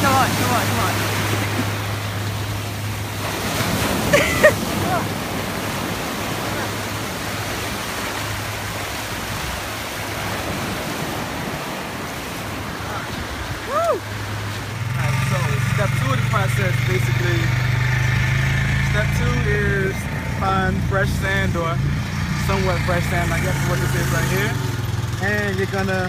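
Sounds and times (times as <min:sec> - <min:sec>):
ocean surf breaking: 0:00.0 - 0:26.0
high cry: 0:13.6 - 0:14.1.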